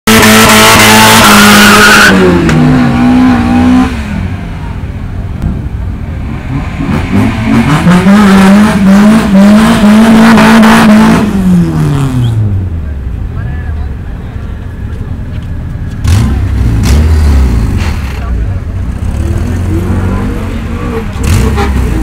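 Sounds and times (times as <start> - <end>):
car engine revving high: 0.1 - 4.4, 6.1 - 12.6.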